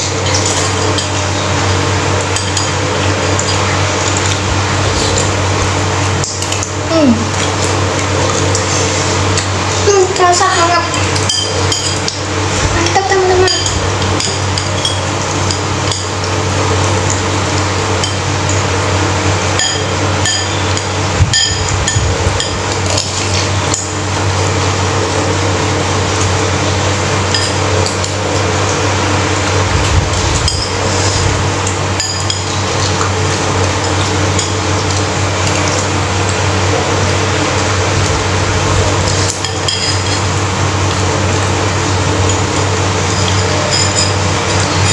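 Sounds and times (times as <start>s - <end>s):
steady low hum: 0.0s - 44.9s
cutlery clinking on ceramic bowl: 11.0s - 12.2s, 19.6s - 23.0s, 39.2s - 40.2s, 43.1s - 44.9s.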